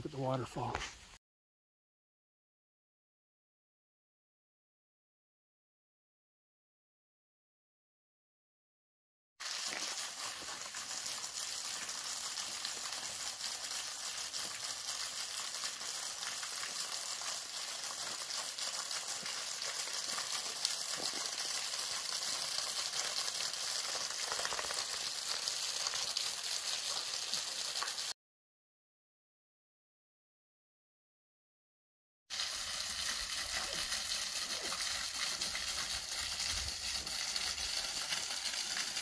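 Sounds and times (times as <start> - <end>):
waterfall splashing onto rocks: 9.4 - 28.2, 32.3 - 39.0.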